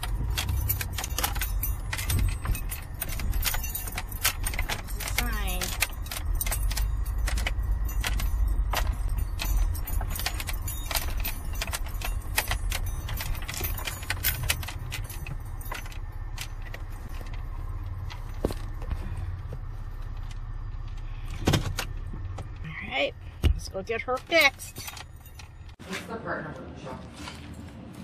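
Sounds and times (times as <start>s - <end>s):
sharp clicks and light rattles: 0.0s - 18.9s
minivan engine and road rumble: 0.0s - 28.0s.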